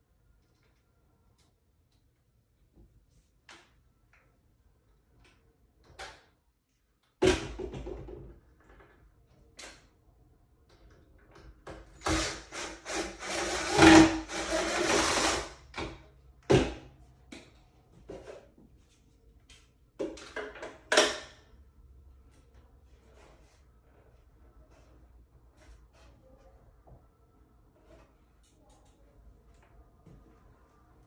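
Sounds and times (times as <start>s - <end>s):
cordless drill driving screws: 12.0s - 15.6s.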